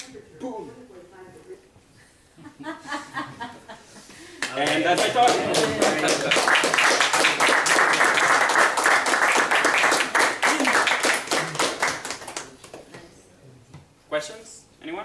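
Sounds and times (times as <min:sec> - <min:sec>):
audience applauding: 0:04.4 - 0:12.9.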